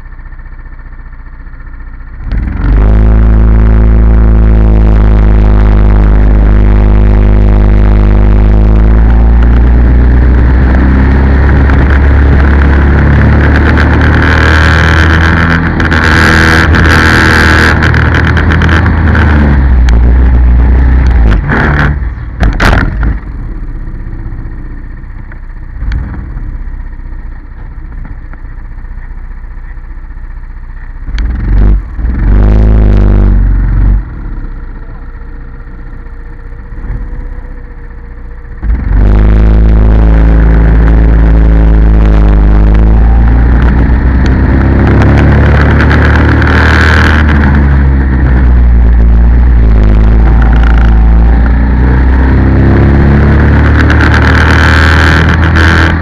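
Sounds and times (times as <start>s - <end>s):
racing kart engine: 0.0s - 56.0s
rushing wind: 38.6s - 56.0s.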